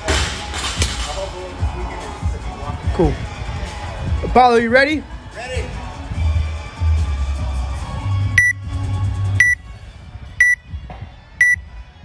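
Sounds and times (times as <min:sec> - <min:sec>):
low bass background music: 0:00.0 - 0:12.0
short high electronic beeps: 0:09.4 - 0:09.6, 0:10.4 - 0:10.6.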